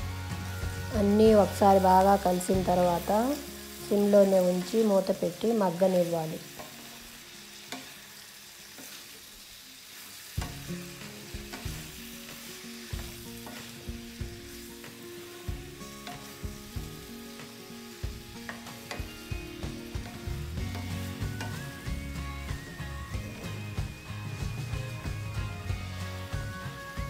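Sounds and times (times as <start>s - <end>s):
vegetables sizzling in a pan: 0.0s - 27.0s
spatula knocking and scraping pan: 10.4s - 14.6s, 15.6s - 17.0s, 18.1s - 22.3s.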